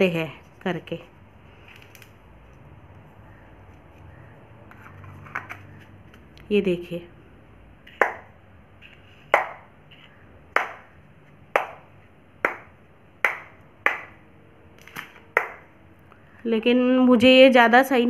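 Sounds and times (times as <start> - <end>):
plastic stamp tapping on tiles: 11.6 - 14.2.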